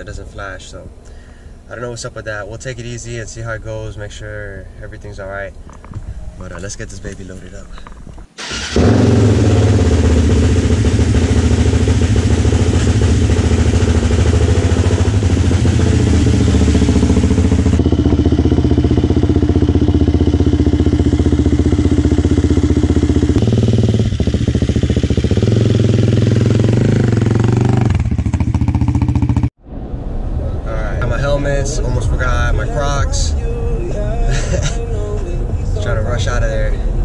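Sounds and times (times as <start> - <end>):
quad engine running: 8.4 - 29.5.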